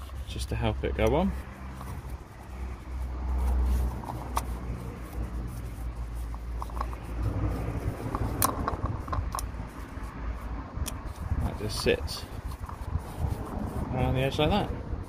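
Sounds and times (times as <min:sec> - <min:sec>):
steady low rumble: 0:00.0 - 0:15.0
plastic cap clicking and rubbing: 0:01.0 - 0:10.2, 0:10.8 - 0:13.6.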